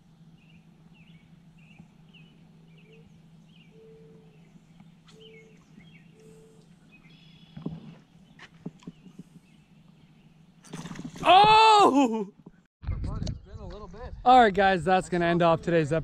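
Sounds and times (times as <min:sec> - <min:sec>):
steady low hum: 0:00.0 - 0:10.7
birds chirping: 0:00.0 - 0:10.8.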